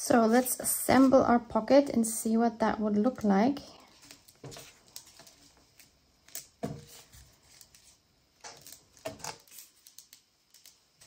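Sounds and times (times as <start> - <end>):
paper rustles and taps: 4.0 - 10.8.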